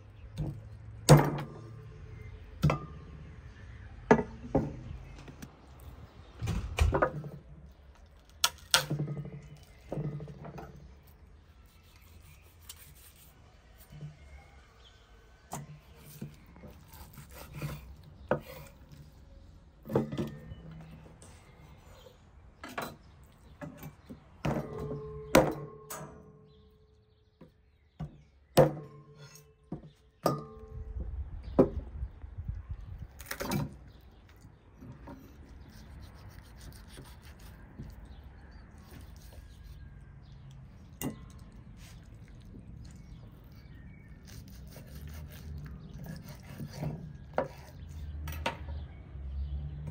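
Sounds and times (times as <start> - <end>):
knife cutting and scraping: 11.0 - 14.0, 15.8 - 19.2, 34.9 - 48.1.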